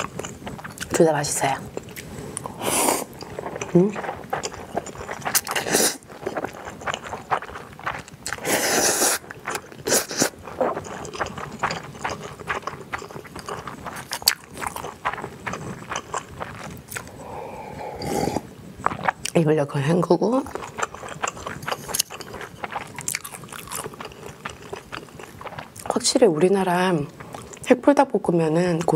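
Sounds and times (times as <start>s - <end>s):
noodles slurped: 0.0s - 19.4s, 20.4s - 26.0s
wet chewing smacks: 1.7s - 17.2s, 20.4s - 26.0s.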